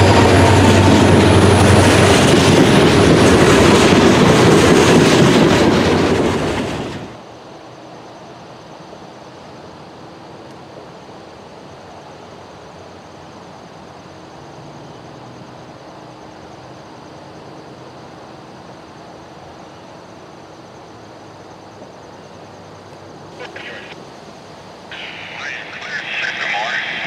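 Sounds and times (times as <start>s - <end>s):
distant locomotive engine drone: 0.0s - 27.0s
insects trilling: 7.2s - 27.0s.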